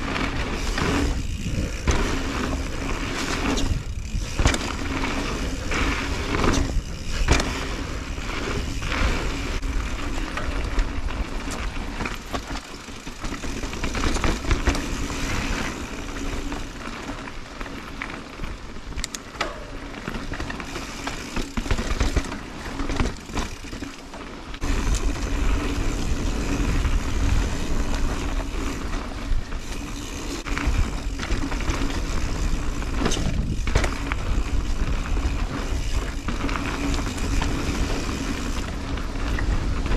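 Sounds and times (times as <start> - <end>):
bike knocks and rattles: 0.0 - 39.9
bike tyres rolling over dirt: 0.0 - 39.9
wind rumble on microphone: 32.0 - 36.4.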